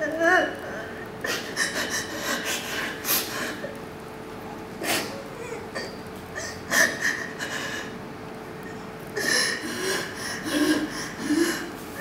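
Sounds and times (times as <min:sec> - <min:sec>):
person whimpering: 0:04.8 - 0:07.8
person sobbing and sniffling: 0:08.7 - 0:12.0.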